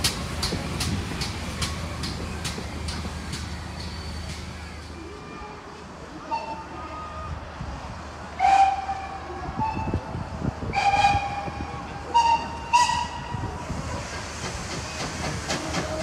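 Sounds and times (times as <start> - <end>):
low rumble of train: 0.0 - 16.0
steam locomotive whistle toots: 8.4 - 10.1, 10.7 - 13.4.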